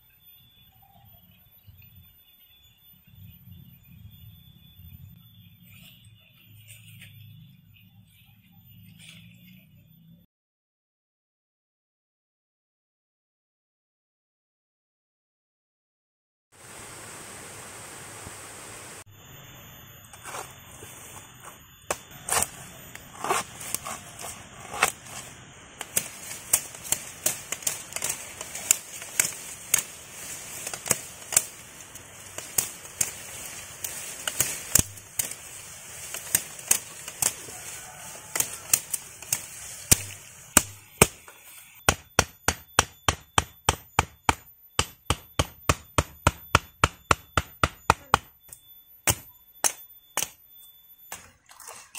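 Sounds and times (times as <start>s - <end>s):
rush of falling water: 16.6s - 19.0s
machete chopping plant stems: 21.4s - 50.4s.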